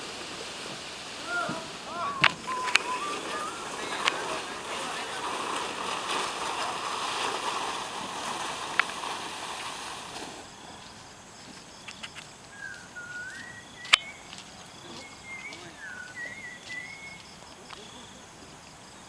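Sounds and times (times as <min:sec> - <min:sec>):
bird chirping: 0:01.5 - 0:05.1, 0:11.8 - 0:18.0.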